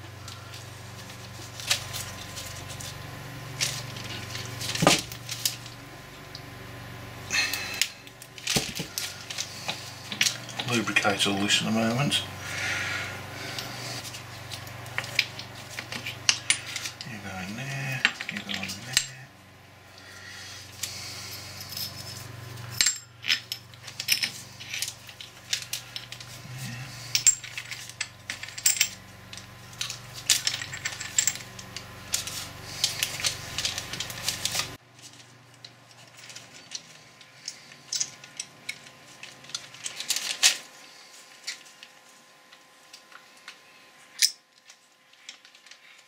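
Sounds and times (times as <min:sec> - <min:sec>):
low steady hum: 0:00.0 - 0:46.0
metal gears clinking and clicking: 0:21.4 - 0:40.6.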